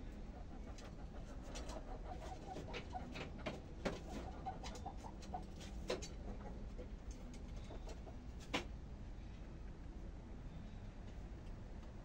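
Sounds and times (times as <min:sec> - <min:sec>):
chickens clucking softly: 0:00.0 - 0:08.8.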